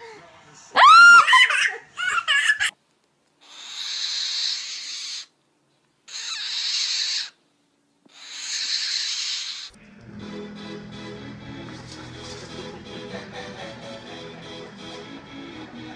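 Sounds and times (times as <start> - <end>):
animal hissing: 3.4 - 5.3, 6.1 - 7.4, 8.1 - 9.8
music: 9.8 - 15.9.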